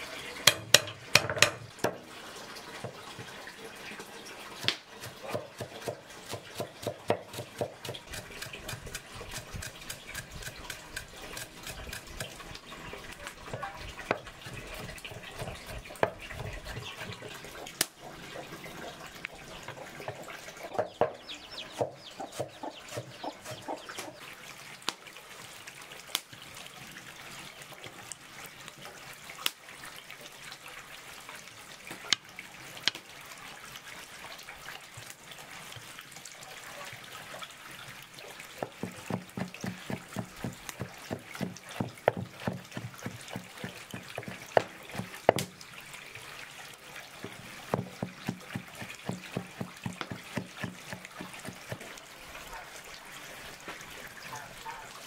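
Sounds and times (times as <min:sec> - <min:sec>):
knife chopping on wooden board: 0:04.6 - 0:12.4, 0:38.6 - 0:45.5, 0:47.7 - 0:51.9
chickens clucking: 0:18.0 - 0:24.3.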